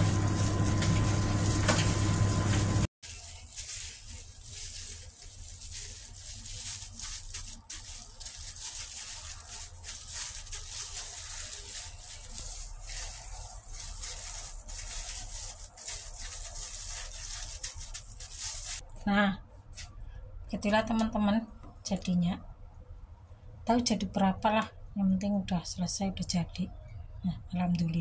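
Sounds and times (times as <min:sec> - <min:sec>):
breadcrumbs rustling: 0:00.0 - 0:18.9
plastic glove crinkling: 0:00.0 - 0:18.9.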